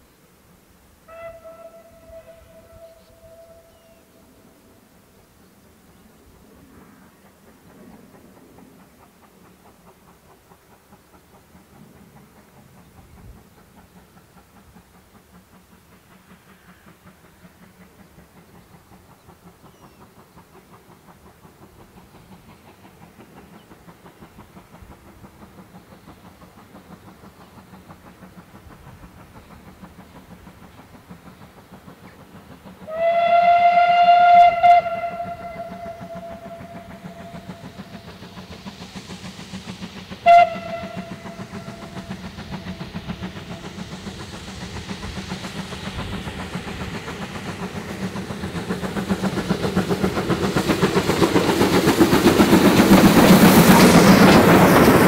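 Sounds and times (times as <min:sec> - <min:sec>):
steam locomotive exhaust beats: 0:00.0 - 0:55.0
steam whistle blast: 0:01.0 - 0:04.1, 0:32.8 - 0:37.8, 0:40.2 - 0:42.2.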